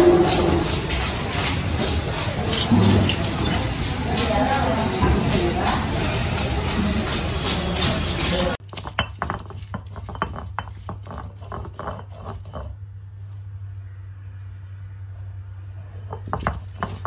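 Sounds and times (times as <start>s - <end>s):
loud dense noise: 0.0s - 8.6s
stone roller crushing garlic: 0.0s - 12.8s, 15.9s - 17.0s.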